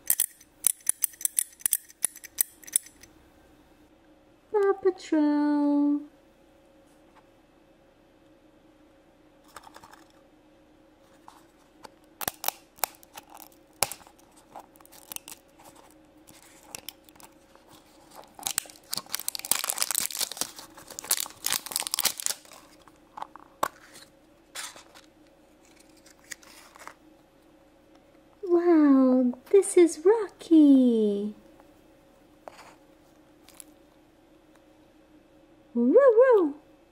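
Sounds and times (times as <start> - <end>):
plastic wrapper crinkling and tearing: 12.2 - 23.0, 23.9 - 27.0.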